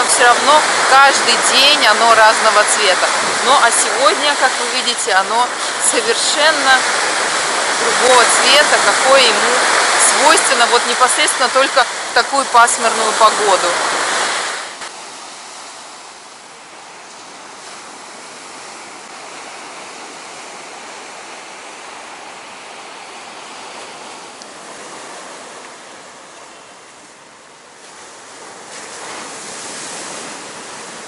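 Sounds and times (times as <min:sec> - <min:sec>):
sea surf breaking on beach: 0:00.0 - 0:31.0.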